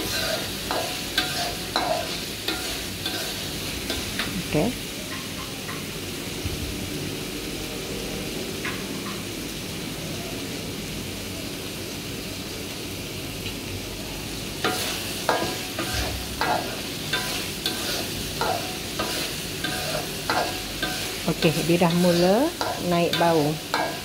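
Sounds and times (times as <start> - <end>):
metal spoon scraping wok: 0.0 - 4.4, 14.6 - 24.0
paste sizzling in oil: 0.0 - 10.1, 14.2 - 24.0.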